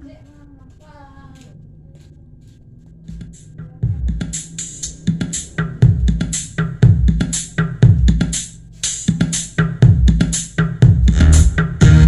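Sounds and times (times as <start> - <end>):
drum machine beat with bass: 3.0 - 12.0.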